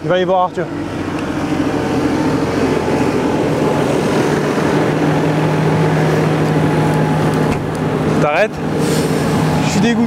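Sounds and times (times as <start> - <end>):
vehicle engine droning: 0.0 - 10.0.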